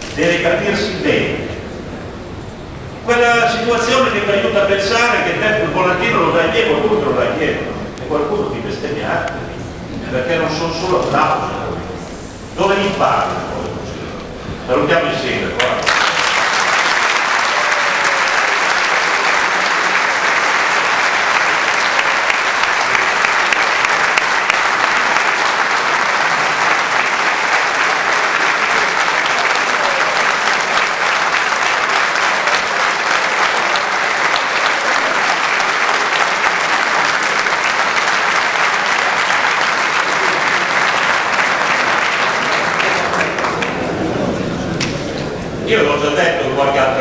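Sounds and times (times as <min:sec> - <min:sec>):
large audience applauding: 0:15.6 - 0:45.0.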